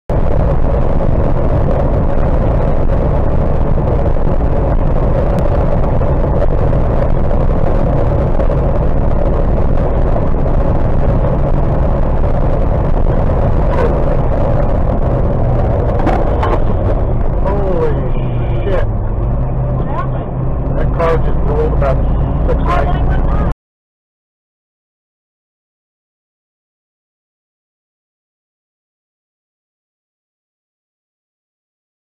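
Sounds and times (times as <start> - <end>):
vehicle engine cruising: 0.1 - 23.5
road noise inside a vehicle: 0.1 - 23.6.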